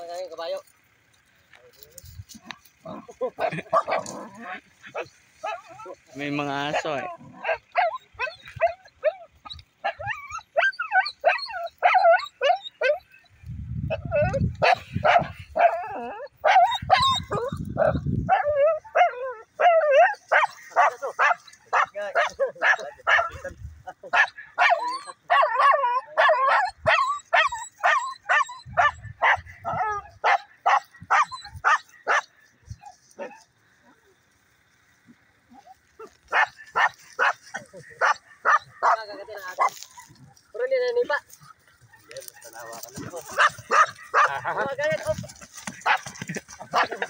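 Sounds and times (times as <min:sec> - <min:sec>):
dog barking rapidly: 0:03.4 - 0:05.9, 0:06.6 - 0:09.2, 0:13.9 - 0:15.8, 0:16.4 - 0:32.3, 0:36.0 - 0:39.8, 0:41.8 - 0:44.8, 0:45.4 - 0:47.0.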